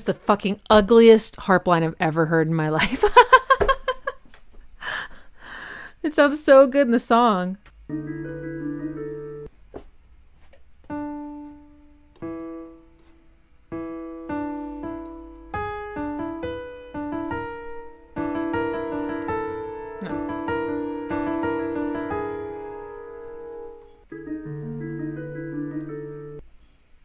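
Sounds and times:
electronic keyboard piano notes: 0:07.9 - 0:09.5, 0:10.8 - 0:26.4.

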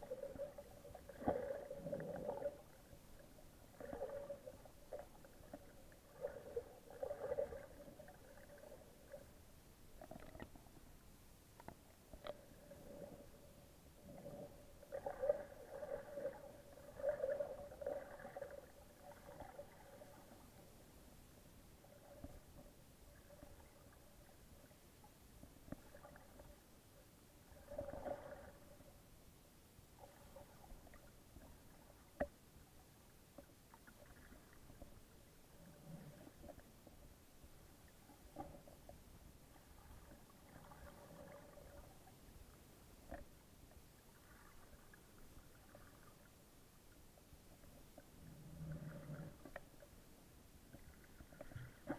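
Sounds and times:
crackling water noise: 0:00.0 - 0:51.9
muffled underwater wash: 0:00.0 - 0:51.9
small underwater clicks: 0:09.9 - 0:20.6, 0:21.8 - 0:26.6, 0:30.0 - 0:32.4, 0:43.0 - 0:46.4, 0:47.5 - 0:50.0, 0:50.6 - 0:51.9.

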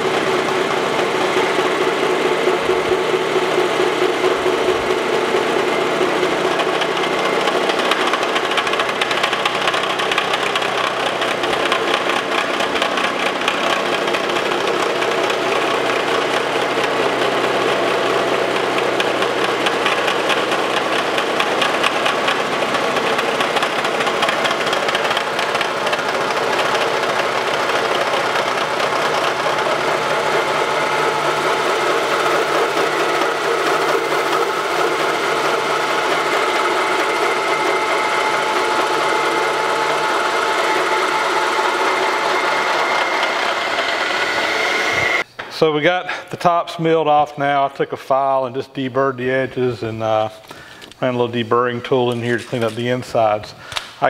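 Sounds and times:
milling cutter chattering through metal: 0:00.0 - 0:45.2.

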